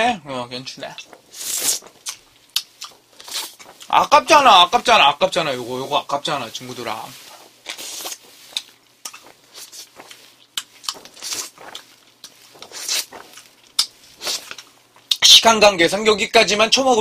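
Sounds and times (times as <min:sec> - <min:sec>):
wet slurps and smacks: 0:00.8 - 0:15.3
sharp mouth clicks: 0:01.0 - 0:03.9
short hissy bursts: 0:01.2 - 0:02.0.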